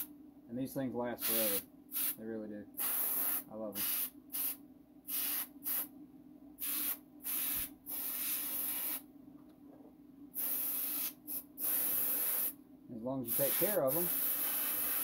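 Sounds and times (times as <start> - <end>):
airbrush spraying bursts: 1.2 - 2.2, 2.8 - 5.9, 6.6 - 9.0, 10.4 - 12.6, 13.2 - 15.0.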